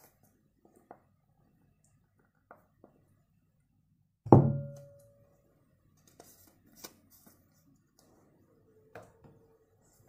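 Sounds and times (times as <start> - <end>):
light ringing tap: 4.3 - 5.2.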